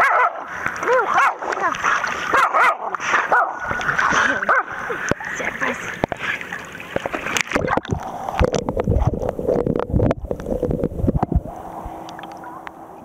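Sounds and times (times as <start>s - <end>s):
water splashing and sloshing: 0.0s - 13.0s
low thumps: 7.5s - 12.4s.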